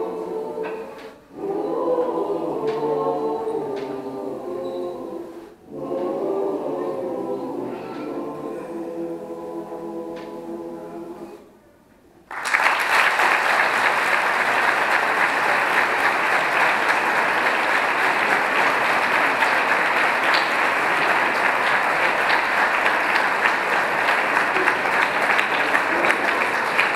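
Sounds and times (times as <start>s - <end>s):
choir holding a chord: 0.0s - 11.5s, 13.2s - 26.9s
audience applauding: 12.3s - 26.9s.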